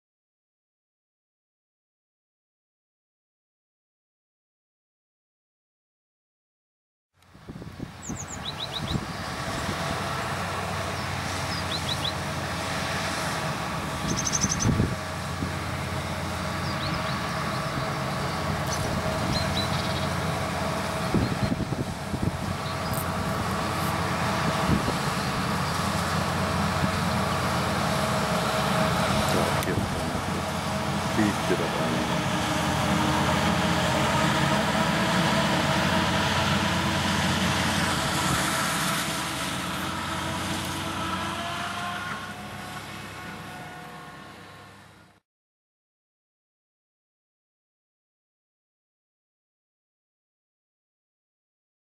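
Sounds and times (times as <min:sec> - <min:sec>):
harvester machine drone with whine: 0:07.2 - 0:45.2.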